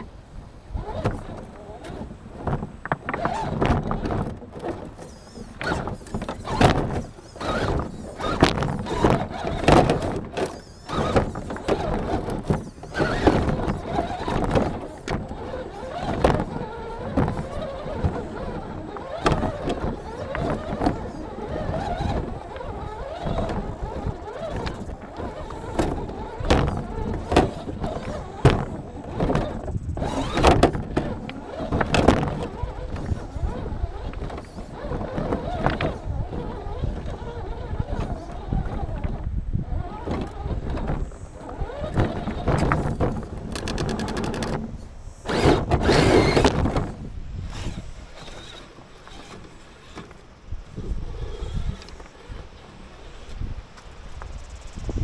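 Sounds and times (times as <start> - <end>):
rc car crunching over pebbles: 0.8 - 54.4.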